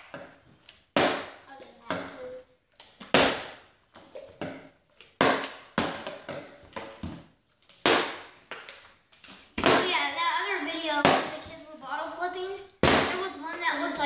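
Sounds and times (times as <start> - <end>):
plastic bottles landing on wooden floor: 0.0 - 10.0, 12.8 - 13.2.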